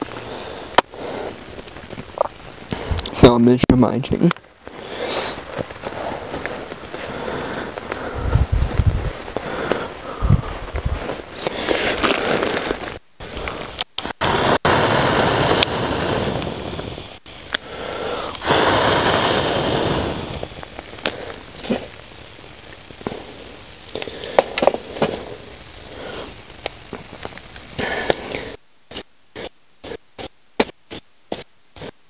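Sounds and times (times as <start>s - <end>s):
rushing hissing noise: 0.0s - 32.0s
gear clicking and crackling: 19.8s - 30.0s.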